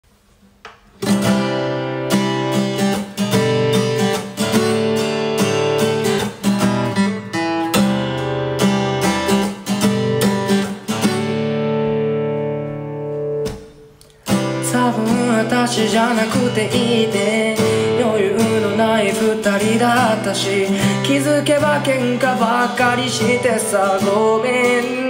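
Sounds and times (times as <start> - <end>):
acoustic guitar strumming chords: 0.5 - 25.0.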